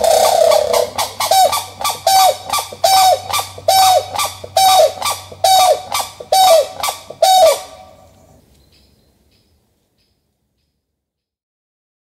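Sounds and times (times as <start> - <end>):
fowl calling harshly: 0.0 - 8.0.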